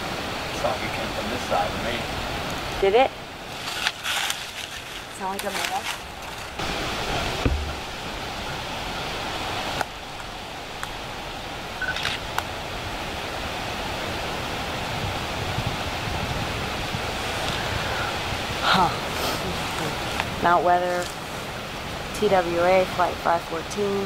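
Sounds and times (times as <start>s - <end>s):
steady hiss: 0.0s - 24.0s
low thump: 7.3s - 7.9s.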